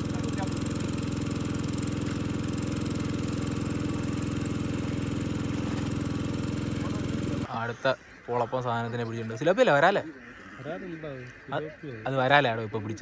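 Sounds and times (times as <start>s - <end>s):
water pump engine running: 0.0s - 7.5s.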